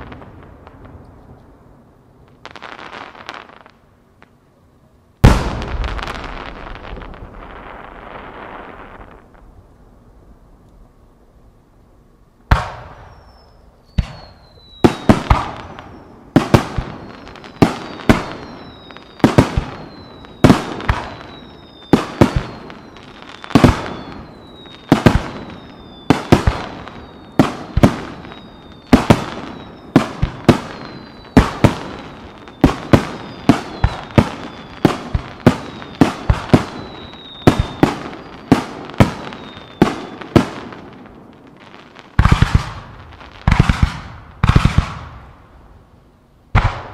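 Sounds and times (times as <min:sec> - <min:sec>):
fireworks bursting with echo: 0:00.0 - 0:04.4, 0:05.2 - 0:10.9, 0:12.4 - 0:45.9, 0:46.5 - 0:46.9
falling firework whistles: 0:12.5 - 0:45.3.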